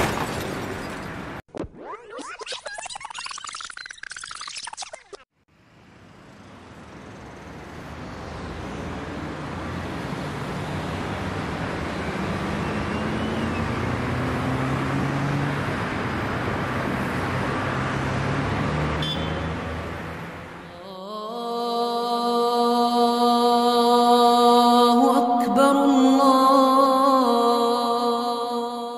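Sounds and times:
car engine and road noise: 5.3s - 20.8s.

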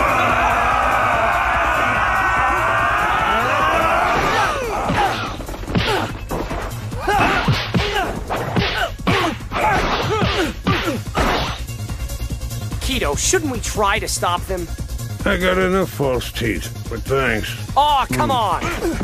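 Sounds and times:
crowd yelling: 0.0s - 5.4s
fighters shouting and grunting: 0.0s - 11.5s, 17.6s - 19.0s
cartoon punch and kick impacts: 4.1s - 11.7s.

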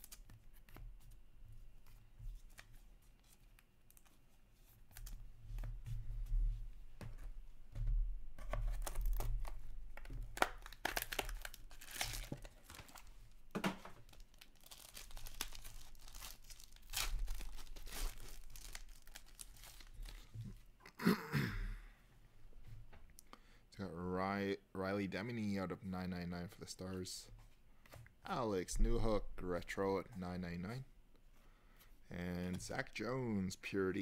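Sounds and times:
foil wrapper tearing and crinkling: 10.3s - 13.0s, 14.0s - 20.3s.

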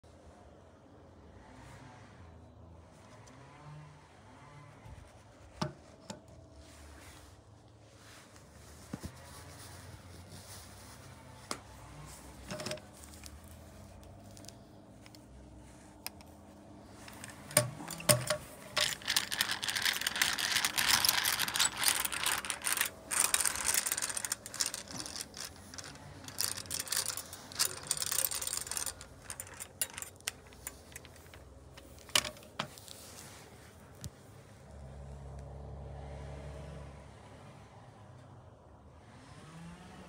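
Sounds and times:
egg beater gears clicking: 17.0s - 32.6s.

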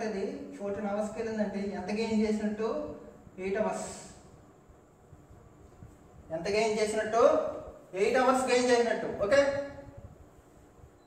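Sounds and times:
person speaking: 0.0s - 4.3s, 6.3s - 9.9s.

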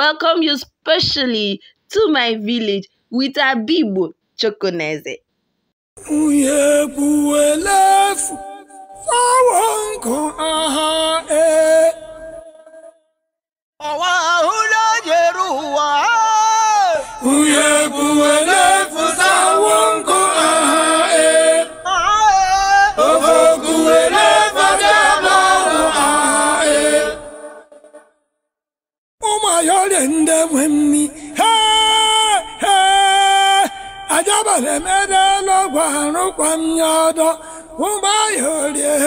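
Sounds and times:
song with singing voices: 6.0s - 12.9s, 13.8s - 28.0s, 29.2s - 39.0s.

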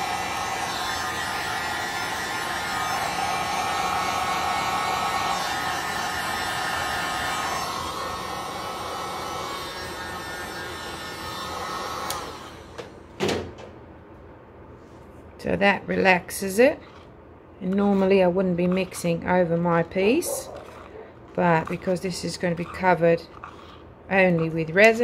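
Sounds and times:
heat gun blowing air: 0.0s - 12.9s.

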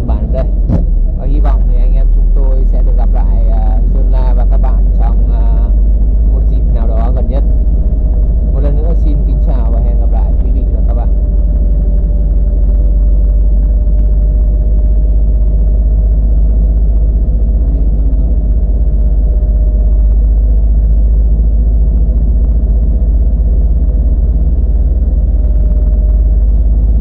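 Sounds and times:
vehicle engine rumble: 0.0s - 27.0s.

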